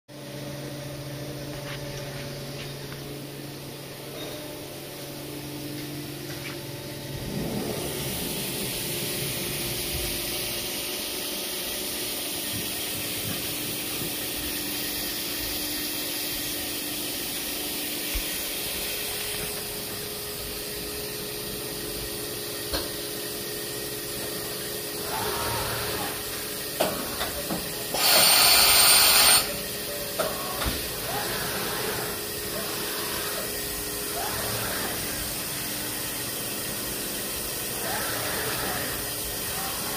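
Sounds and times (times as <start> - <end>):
machining centre humming: 0.1 - 39.9
loud air hiss: 27.9 - 29.6.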